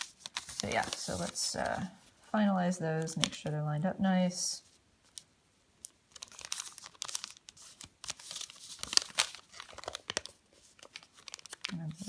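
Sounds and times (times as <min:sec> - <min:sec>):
paper crinkling and crackling: 0:00.0 - 0:02.0, 0:03.0 - 0:03.6, 0:05.0 - 0:12.0.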